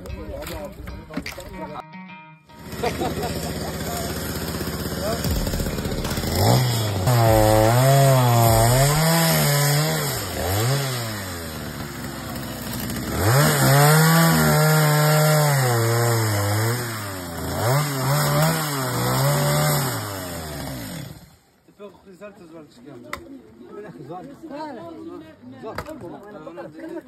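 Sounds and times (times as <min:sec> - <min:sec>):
chainsaw cutting branches: 0:02.5 - 0:21.4.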